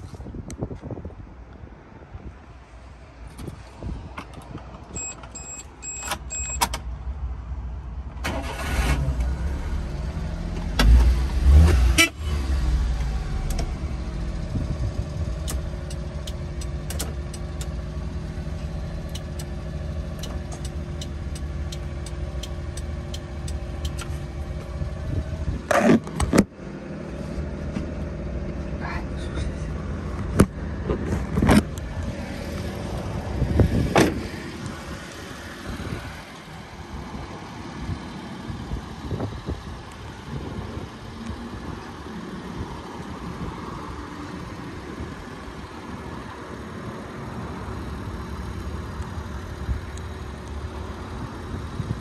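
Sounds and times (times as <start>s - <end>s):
short beeps: 5.0s - 6.6s
car engine starting and idling: 8.0s - 52.0s.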